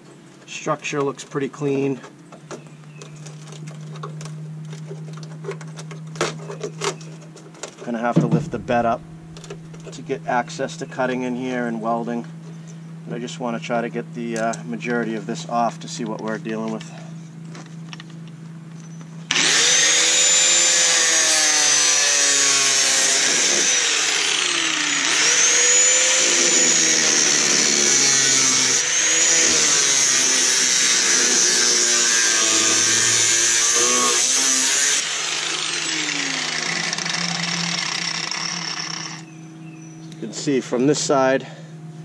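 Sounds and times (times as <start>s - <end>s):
angle grinder cutting metal: 19.3s - 39.3s.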